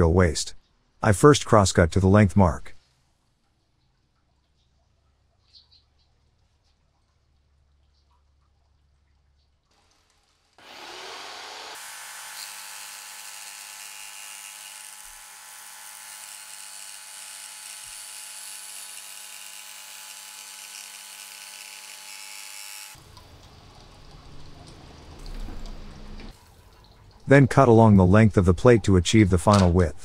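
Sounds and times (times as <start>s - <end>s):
jigsaw cutting acrylic whine: 10.6s - 23.0s.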